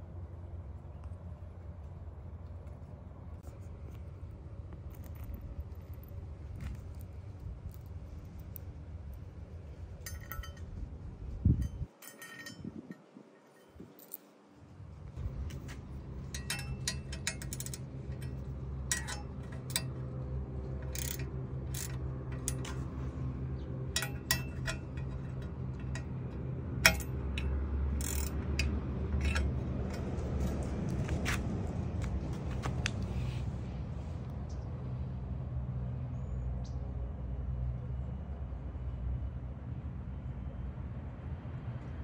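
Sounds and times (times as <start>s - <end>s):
steady low hum: 0.0s - 42.0s
ratchet wrench clicking: 16.2s - 20.0s, 20.8s - 23.0s, 24.0s - 30.7s.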